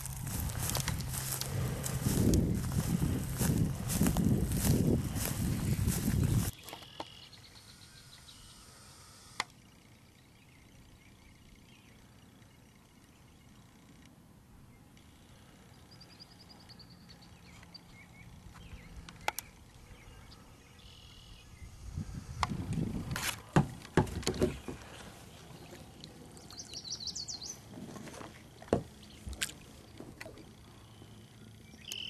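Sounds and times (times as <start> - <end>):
paddle knocking against hull: 23.5 - 24.9
paddle splashing: 27.6 - 30.6.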